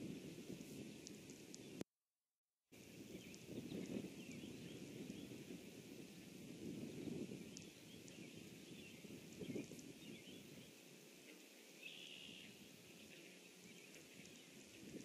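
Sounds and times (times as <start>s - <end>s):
distant birds chirping: 7.0s - 15.0s.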